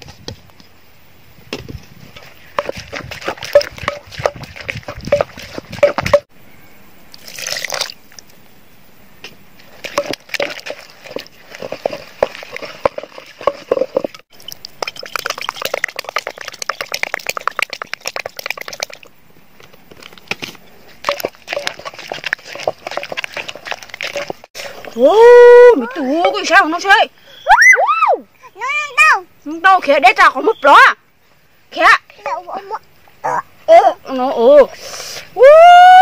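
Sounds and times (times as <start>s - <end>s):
spoon stirring wet dressing: 2.6s - 6.2s, 9.9s - 19.0s, 21.0s - 24.5s.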